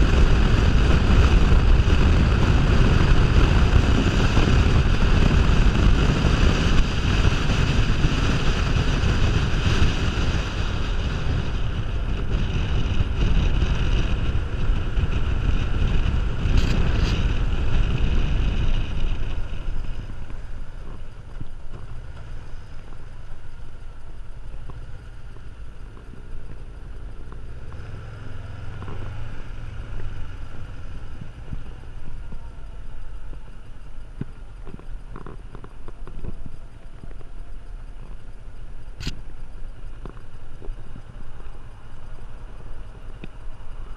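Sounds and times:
motorcycle engine running: 0.0 - 43.9
wind rushing over microphone: 0.0 - 43.9.

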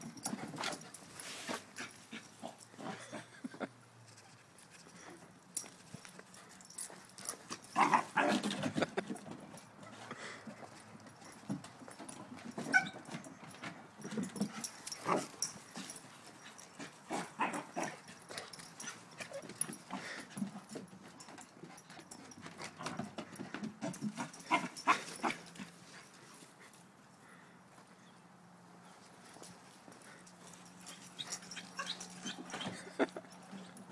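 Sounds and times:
knocks and rustles: 5.6 - 25.8
dogs yipping and whining: 12.0 - 13.6, 30.4 - 33.9.

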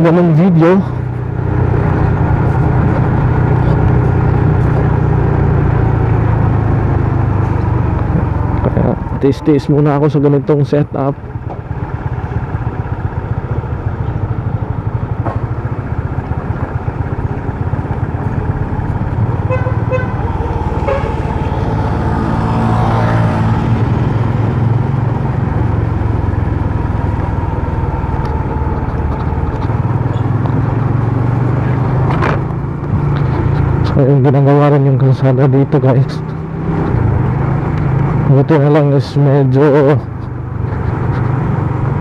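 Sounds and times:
motorcycle engine running: 0.0 - 42.0
road and wind rumble: 0.0 - 42.0
vehicle horn toots: 19.4 - 21.6.

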